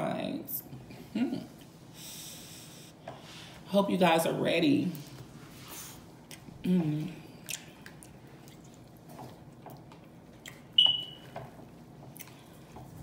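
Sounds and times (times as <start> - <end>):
close-up chewing: 5.8 - 6.6, 7.3 - 13.0.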